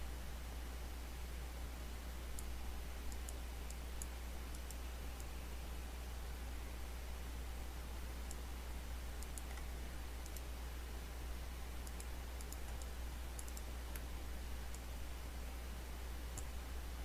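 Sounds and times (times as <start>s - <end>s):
low hum and hiss: 0.0s - 17.0s
computer mouse clicks: 2.3s - 5.3s, 8.2s - 8.5s, 9.2s - 10.5s, 11.8s - 14.1s, 14.7s - 14.9s, 16.3s - 16.6s.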